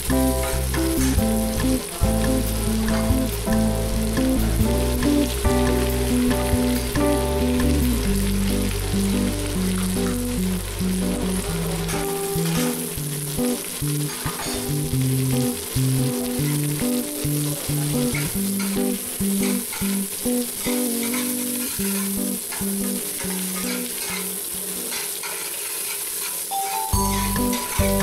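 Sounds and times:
background music melody: 0.0 - 19.3, 26.5 - 28.0
food sizzling in hot oil: 0.0 - 28.0.

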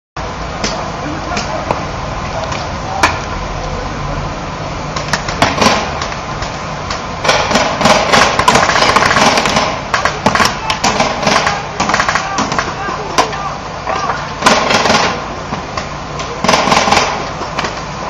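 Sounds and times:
rumbling background noise: 0.2 - 18.0.

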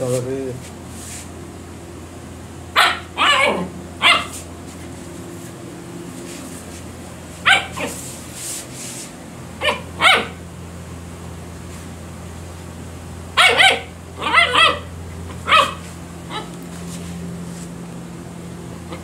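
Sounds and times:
puppy barking: 2.7 - 4.5, 7.4 - 8.1, 9.6 - 10.4, 13.3 - 16.6.

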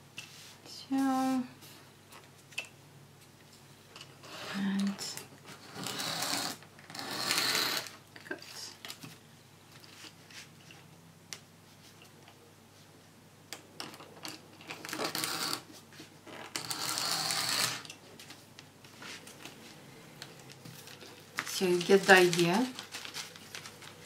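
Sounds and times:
paper rustling: 18.2 - 24.0.

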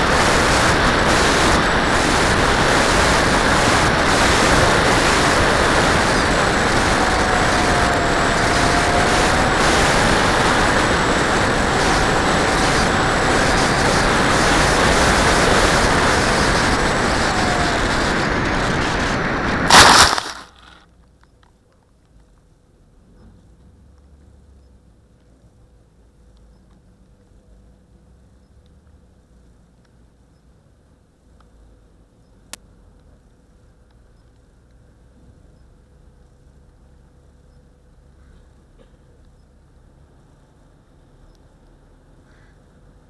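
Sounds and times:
rushing wind noise: 0.0 - 20.8
electric fan whine: 0.0 - 20.9.

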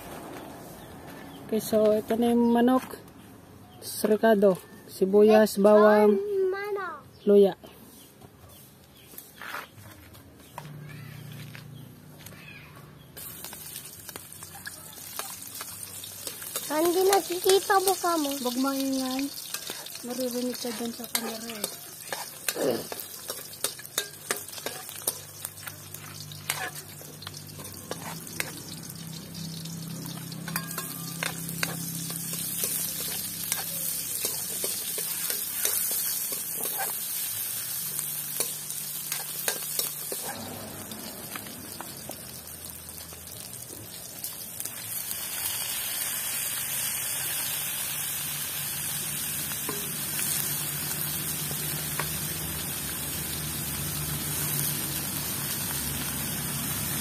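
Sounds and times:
food sizzling in a hot wok: 13.2 - 57.0
metal spatula scraping a pan: 19.3 - 29.1, 30.0 - 37.5, 38.3 - 42.0.

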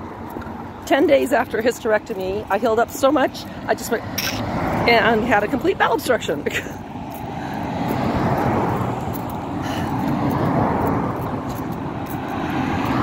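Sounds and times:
road traffic rushing: 0.0 - 13.0.

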